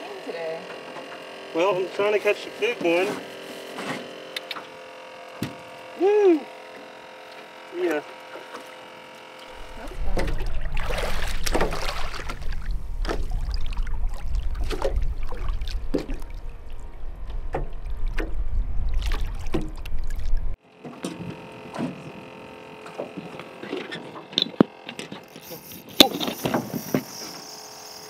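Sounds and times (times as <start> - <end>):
waves slapping against boat: 9.6 - 20.6
wind buffeting microphone: 9.6 - 20.6.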